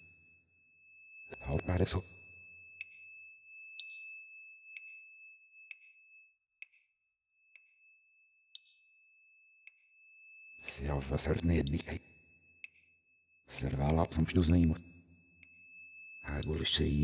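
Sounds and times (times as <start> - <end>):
faint high-pitched tone: 0.0 - 6.4, 9.7 - 17.0
soft ticking: 3.7 - 4.1.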